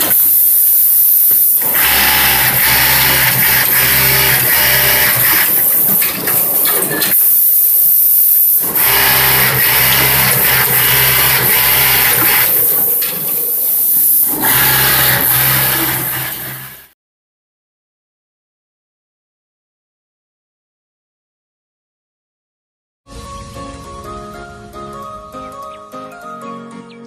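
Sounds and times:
sewing machine hum: 0.0 - 7.4, 8.5 - 16.9.

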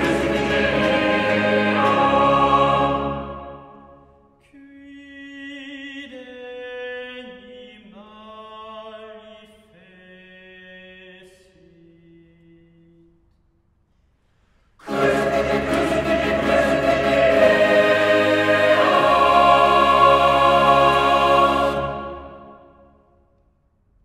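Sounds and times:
choir singing a cappella: 0.0 - 4.0, 14.8 - 22.9.

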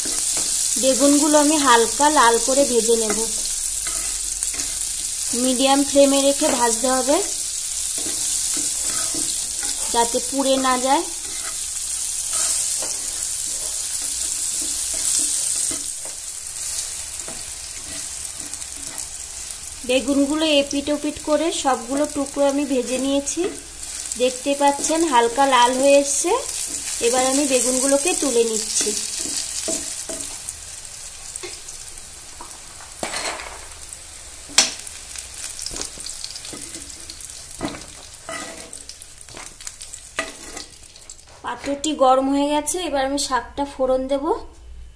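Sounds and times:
eggplant sizzling in oil: 0.0 - 42.4
spatula scraping and tapping pan: 2.9 - 5.1, 7.8 - 19.2, 26.5 - 30.4, 35.6 - 41.8.

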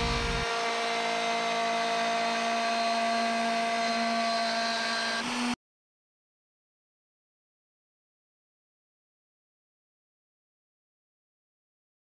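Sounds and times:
router motor whining: 0.0 - 5.6.

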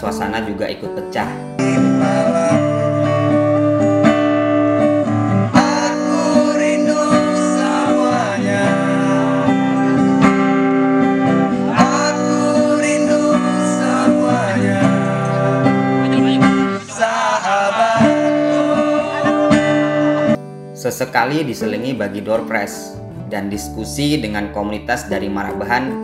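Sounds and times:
strummed acoustic guitar: 1.0 - 20.8
man singing into a microphone: 1.6 - 3.3, 5.6 - 10.6, 11.6 - 15.9, 16.6 - 20.3.

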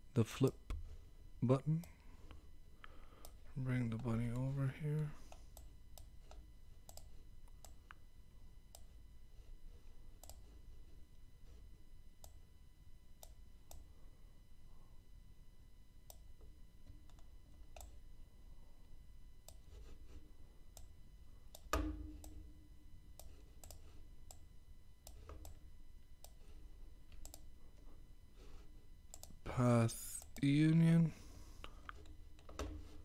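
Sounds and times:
computer mouse clicks: 5.3 - 8.0, 8.7 - 9.0, 10.2 - 10.5, 12.2 - 12.4, 20.7 - 22.4, 23.1 - 25.6, 26.2 - 27.5, 29.1 - 29.4.

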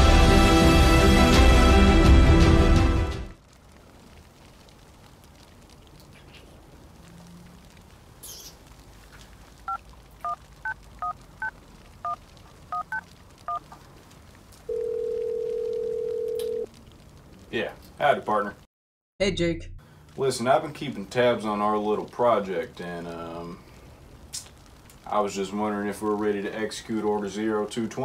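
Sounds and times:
telephone ringing tone: 14.7 - 16.7.

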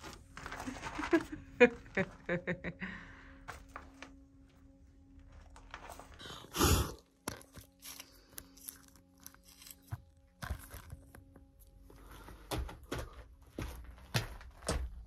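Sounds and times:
low droning music: 0.0 - 15.0
small knocks and crunches: 7.2 - 11.7.

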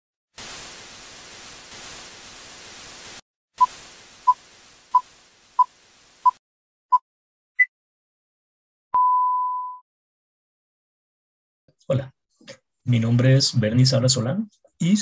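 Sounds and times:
static hiss: 0.4 - 6.4.

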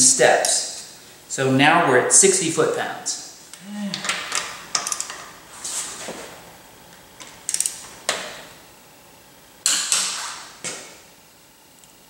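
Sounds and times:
torque wrench clicks: 7.5 - 7.8
torque wrench ratchet ticks: 7.5 - 7.8.

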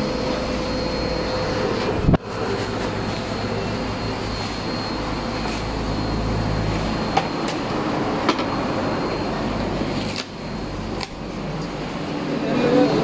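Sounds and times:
steady rumbling drone: 0.0 - 13.0
cardboard packing being handled: 1.8 - 3.6.

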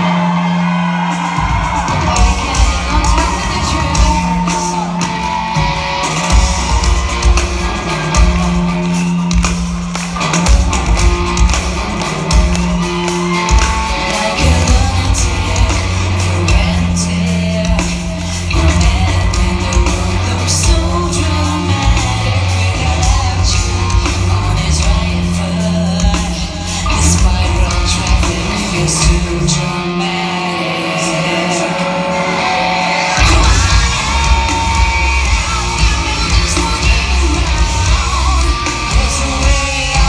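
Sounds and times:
pounding drums: 0.0 - 25.1, 33.2 - 40.0
distorted guitars: 0.0 - 40.0
heavy bass: 0.0 - 40.0
person singing: 0.0 - 40.0.

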